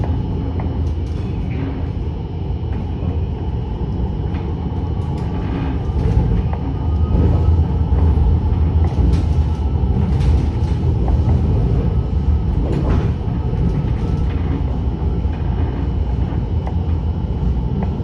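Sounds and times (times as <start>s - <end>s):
tram rumbling on rails: 0.0s - 18.0s
faint clicks and rattles: 8.0s - 17.0s.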